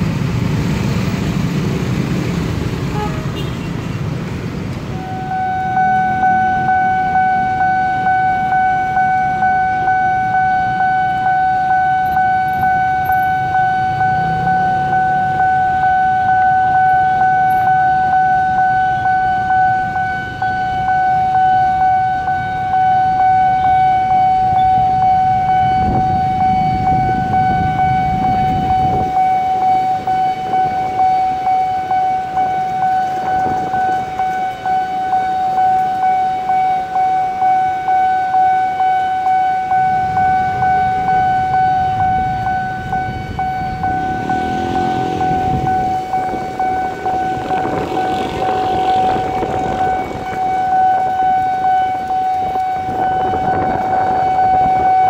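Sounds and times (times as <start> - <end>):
level crossing alarm pulsing: 4.9 - 55.0.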